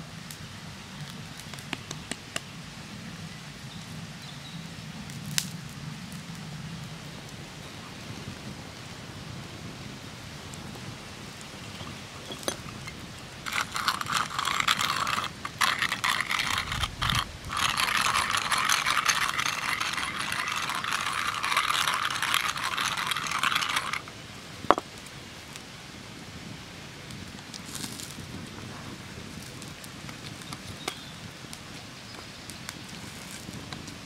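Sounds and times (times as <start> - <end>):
spice mill grinding: 12.3 - 24.1.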